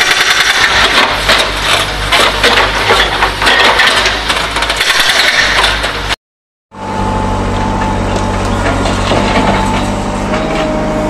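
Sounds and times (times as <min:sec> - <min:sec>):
hydraulic breaker hammering: 0:00.0 - 0:06.2
diesel engine running: 0:05.8 - 0:11.0.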